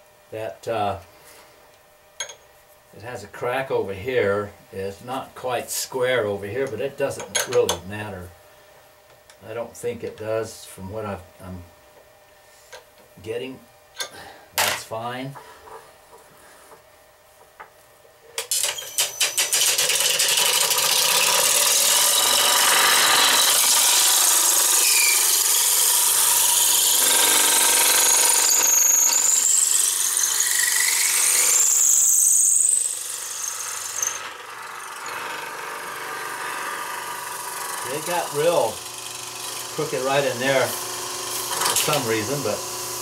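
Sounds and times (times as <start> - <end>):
wood lathe shaving: 18.5 - 43.0.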